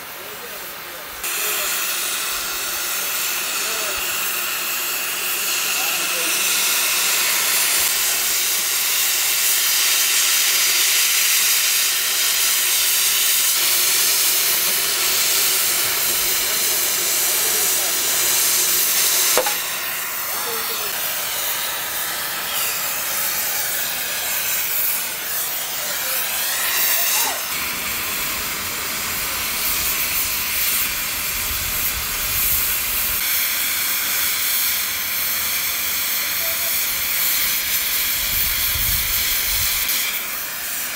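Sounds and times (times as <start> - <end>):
cutting torch hissing: 0.0 - 40.9
sharp click: 19.4 - 19.6.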